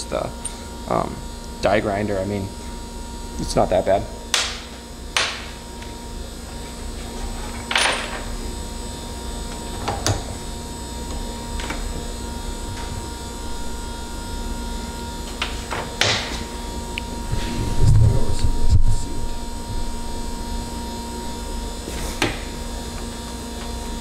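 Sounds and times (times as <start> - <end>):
steady electrical hum: 0.0 - 24.0.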